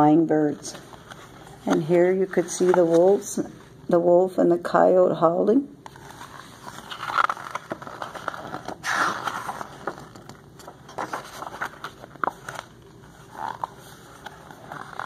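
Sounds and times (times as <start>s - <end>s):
book pages turning: 0.6s - 3.5s, 5.9s - 15.0s.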